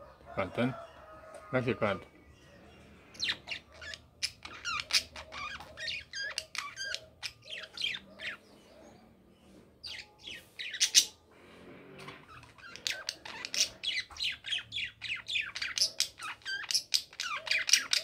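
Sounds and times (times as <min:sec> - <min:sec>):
budgerigar chirping: 0:03.2 - 0:08.6, 0:09.8 - 0:11.2, 0:12.3 - 0:18.0.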